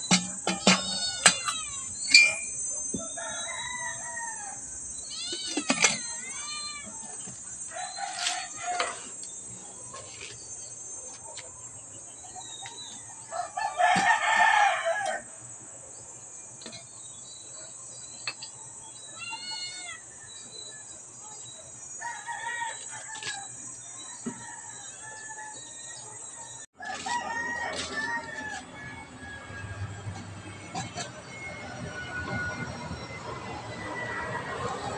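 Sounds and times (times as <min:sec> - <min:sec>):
rooster crowing: 0:02.3 - 0:04.8, 0:07.7 - 0:09.2, 0:13.0 - 0:15.3, 0:22.0 - 0:30.2.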